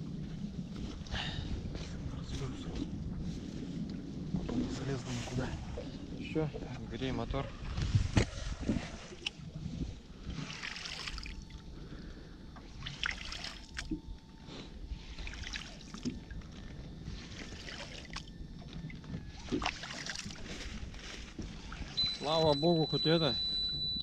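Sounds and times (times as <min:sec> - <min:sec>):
steady low rumble: 0:00.0 - 0:24.0
water slapping against metal hull: 0:17.4 - 0:22.4.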